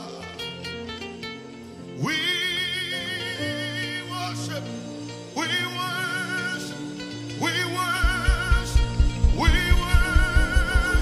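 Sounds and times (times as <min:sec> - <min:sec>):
man singing with vibrato: 0:00.0 - 0:01.0, 0:01.7 - 0:11.0
band sustained chords: 0:00.0 - 0:11.0
steady low beat: 0:08.0 - 0:11.0.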